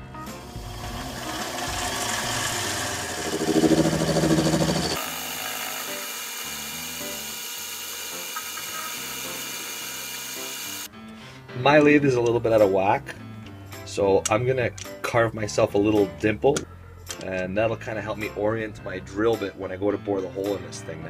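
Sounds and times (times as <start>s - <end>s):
background music: 0.0s - 7.4s, 10.4s - 21.0s
metal lathe running: 0.4s - 10.9s.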